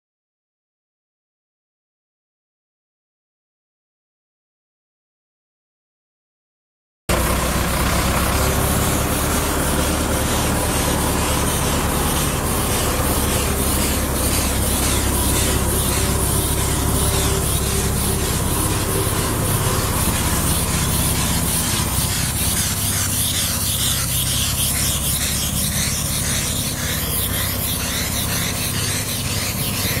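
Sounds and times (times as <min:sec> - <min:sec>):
paint spraying hiss: 0:07.1 - 0:30.0
tractor engine running: 0:07.1 - 0:30.0.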